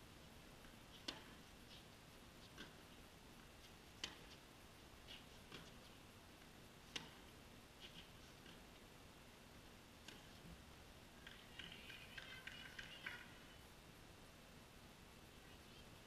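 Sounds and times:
tennis racquets hitting ball: 0:00.7 - 0:01.5, 0:03.6 - 0:04.4, 0:05.1 - 0:05.9, 0:06.8 - 0:08.7.

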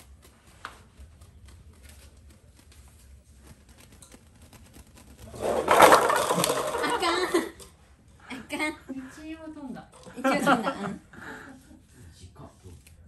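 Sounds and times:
paper cups rattling and clattering: 0:03.3 - 0:07.8.

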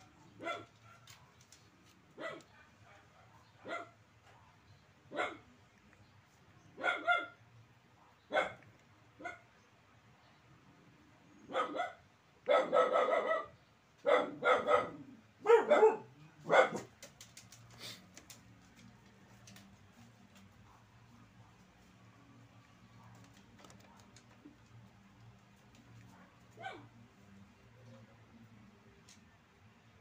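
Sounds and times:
dog barking: 0:00.1 - 0:01.4, 0:02.2 - 0:05.5, 0:06.7 - 0:09.5, 0:11.5 - 0:16.9, 0:26.0 - 0:27.0.

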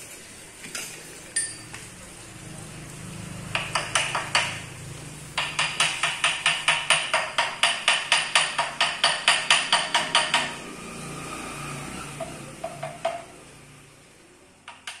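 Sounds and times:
rapid knocking: 0:03.5 - 0:04.6, 0:05.4 - 0:10.6, 0:12.2 - 0:13.3.

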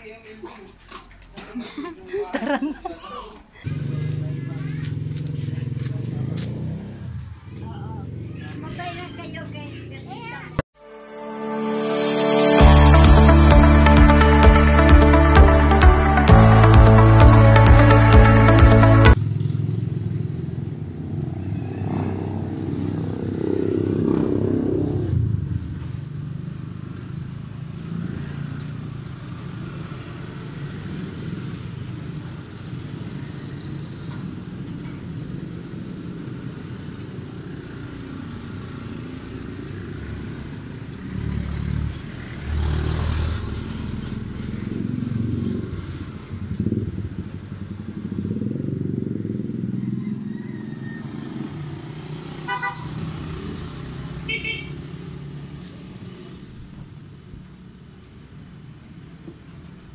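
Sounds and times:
low traffic rumble: 0:00.0 - 0:10.6, 0:12.8 - 0:59.9
motorcycles passing: 0:02.4 - 0:10.6, 0:12.6 - 0:58.8.

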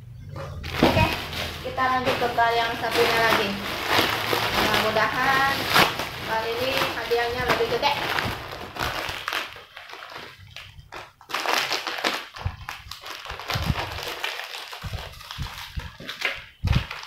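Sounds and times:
plastic wrappers crinkling: 0:00.4 - 0:17.0
packet tearing open: 0:08.1 - 0:17.0.

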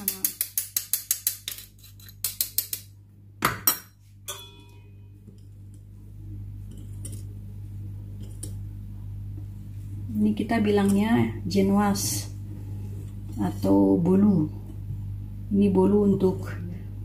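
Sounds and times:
utensils knocking against bowl: 0:00.0 - 0:05.0
low steady hum: 0:00.0 - 0:17.0
ringing clink: 0:04.3 - 0:05.1.

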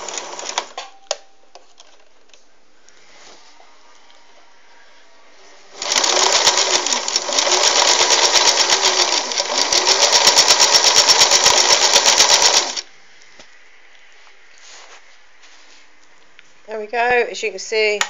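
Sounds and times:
sewing machine clattering: 0:05.8 - 0:12.8.

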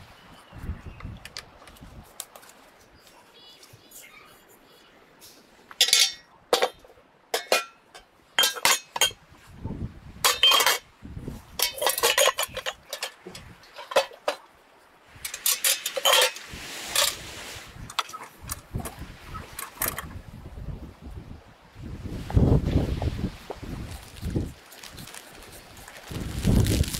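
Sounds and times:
glass bottles clinking: 0:05.8 - 0:09.2, 0:10.2 - 0:10.8, 0:11.6 - 0:14.4, 0:15.3 - 0:17.2
bucket scraping: 0:15.3 - 0:18.9.

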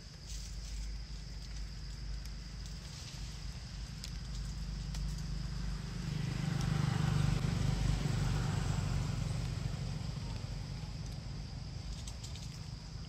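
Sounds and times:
passing motor vehicle rumble: 0:03.2 - 0:13.0.

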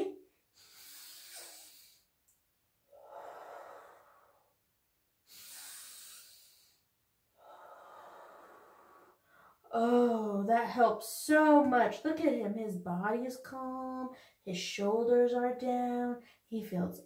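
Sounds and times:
woman breathing deeply: 0:00.5 - 0:02.2, 0:02.9 - 0:04.6, 0:05.2 - 0:09.7.

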